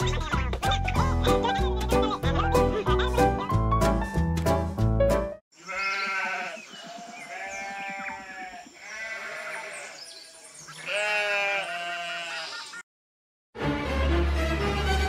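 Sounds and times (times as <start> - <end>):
sheep bleating: 5.6 - 12.8.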